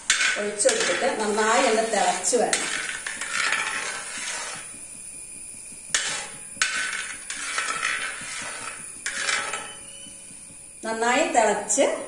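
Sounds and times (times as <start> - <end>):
metal ladle scraping pan: 0.0 - 4.8, 5.9 - 10.1.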